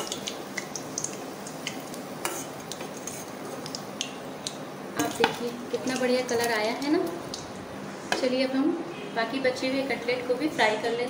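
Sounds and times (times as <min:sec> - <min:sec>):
hot oil sizzling: 0:00.0 - 0:08.6.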